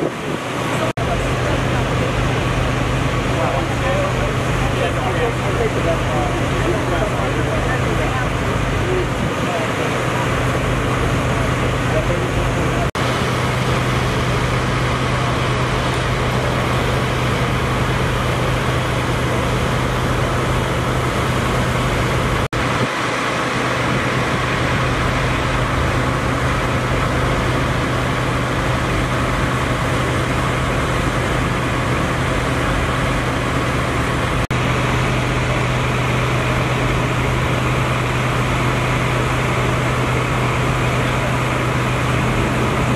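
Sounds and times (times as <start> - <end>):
engine idling: 0.0 - 42.9.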